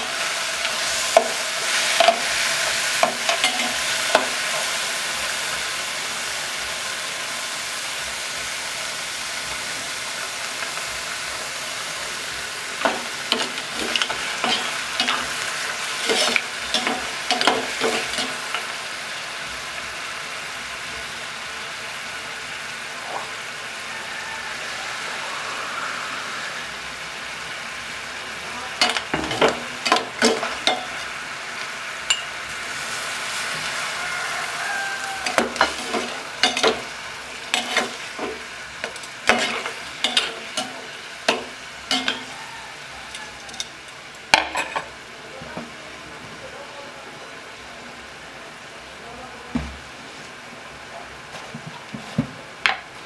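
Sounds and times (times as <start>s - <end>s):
liquid simmering and sizzling in pot: 0.0s - 53.0s
metal spoon clinking against pot: 16.0s - 18.5s, 28.8s - 31.0s, 32.1s - 32.3s, 35.2s - 36.9s, 39.3s - 42.4s.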